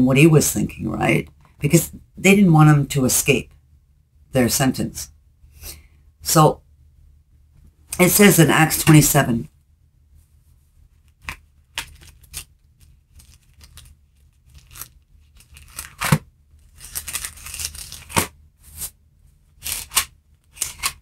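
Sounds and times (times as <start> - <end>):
thin pages being leafed through: 11.0 - 19.0, 19.6 - 21.0.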